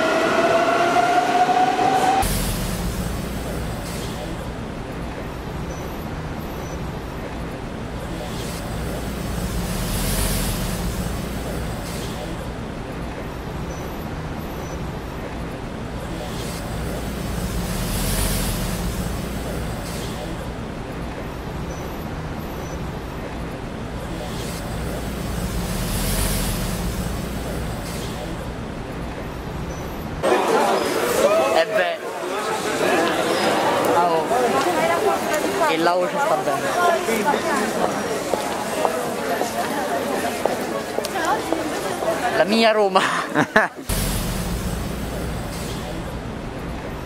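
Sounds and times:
metro train rumble: 0:00.0 - 0:30.2, 0:43.8 - 0:47.0
hiss: 0:01.9 - 0:04.7, 0:08.1 - 0:12.6, 0:16.0 - 0:20.6, 0:24.1 - 0:28.6, 0:43.8 - 0:46.3.

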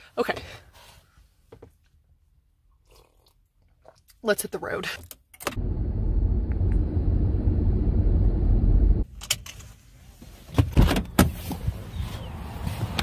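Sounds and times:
car road and engine rumble: 0:05.5 - 0:13.0.

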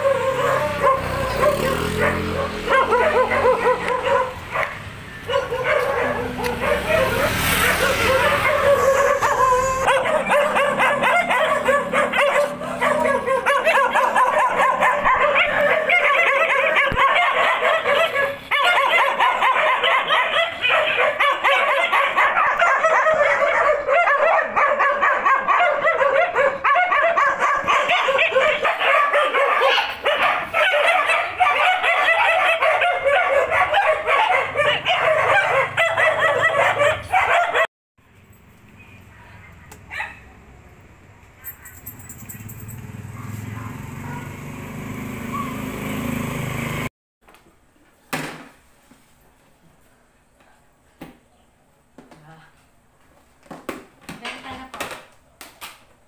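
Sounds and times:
dogs barking and yipping: 0:00.0 - 0:37.7, 0:39.2 - 0:40.4, 0:41.3 - 0:44.5, 0:45.1 - 0:46.2.

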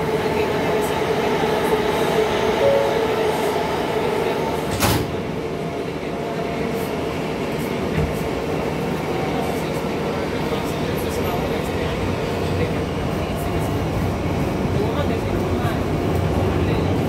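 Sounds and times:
subway car humming: 0:00.0 - 0:17.0
train doors sliding shut: 0:04.6 - 0:05.3.

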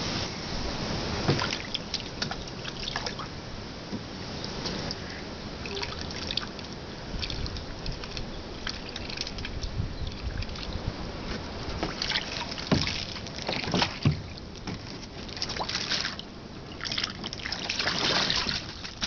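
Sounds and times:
duck splashing in water: 0:01.2 - 0:03.3, 0:05.6 - 0:10.8, 0:11.8 - 0:14.4, 0:15.2 - 0:19.0.

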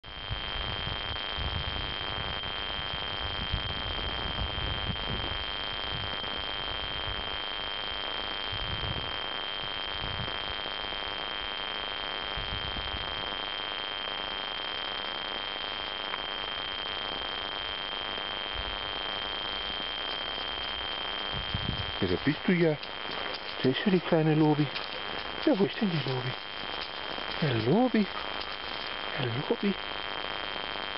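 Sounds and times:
wind gusts on microphone: 0:00.1 - 0:07.4, 0:08.5 - 0:10.6, 0:19.6 - 0:30.3
high-pitched whine: 0:00.1 - 0:30.9
recording hiss: 0:00.3 - 0:30.9.

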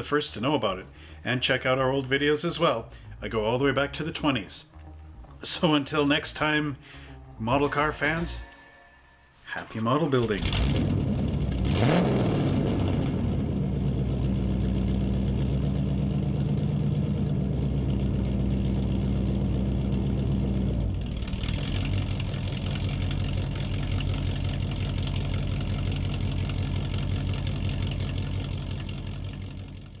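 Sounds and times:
car engine idling: 0:10.2 - 0:30.0.

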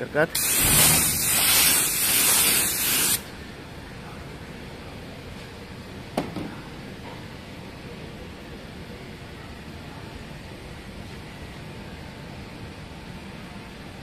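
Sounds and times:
paint spray gun hissing: 0:00.4 - 0:03.2.

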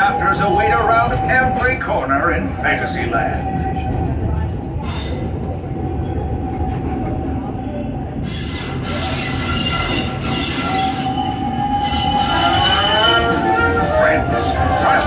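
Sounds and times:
train wheels rumbling on track: 0:00.0 - 0:15.0
wheel squeal: 0:08.2 - 0:13.6.

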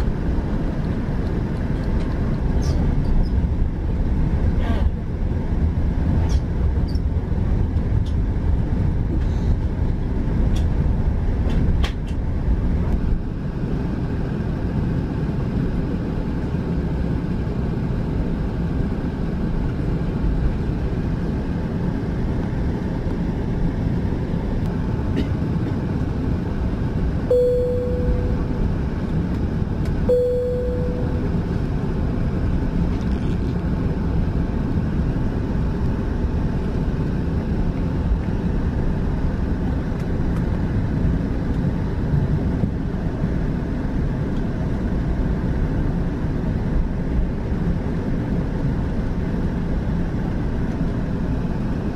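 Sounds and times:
aircraft cabin low rumble: 0:00.0 - 0:51.9
short mid-pitched tones: 0:27.3 - 0:28.7, 0:30.1 - 0:31.5.

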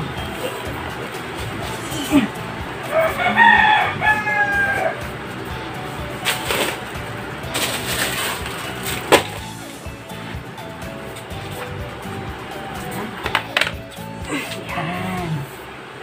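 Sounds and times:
rooster crowing: 0:02.8 - 0:05.1.

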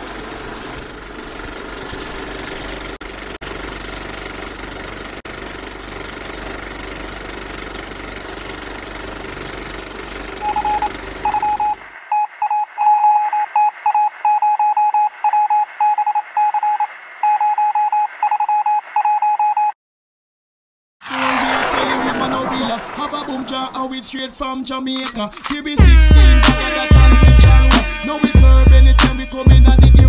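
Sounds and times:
morse code beeping: 0:10.4 - 0:19.7, 0:25.8 - 0:30.0.

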